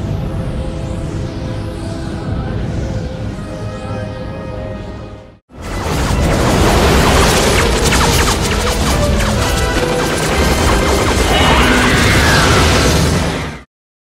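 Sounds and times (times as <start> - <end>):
music: 0.0 - 12.0
crashing and smashing impacts: 5.6 - 13.6
explosion: 5.6 - 13.7.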